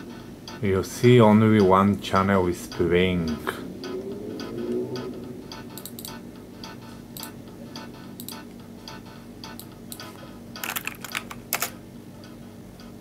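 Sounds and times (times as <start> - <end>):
low steady hum: 0.0 - 13.0
light ticking clicks: 0.4 - 10.1.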